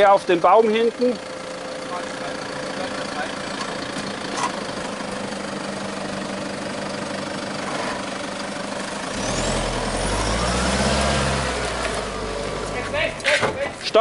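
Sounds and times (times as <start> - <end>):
off-road vehicle engine: 0.0 - 14.0.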